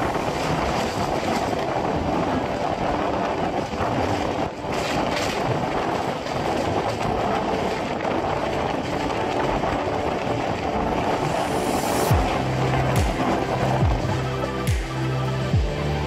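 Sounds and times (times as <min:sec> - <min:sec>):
passenger train running: 0:00.0 - 0:16.0.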